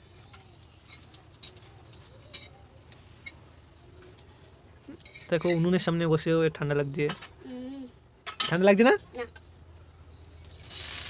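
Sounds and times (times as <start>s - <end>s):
fire crackling: 10.3s - 11.0s.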